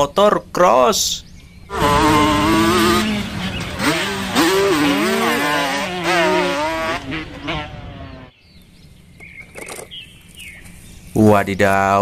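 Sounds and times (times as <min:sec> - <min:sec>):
dirt bike engine revving: 0:01.7 - 0:08.3.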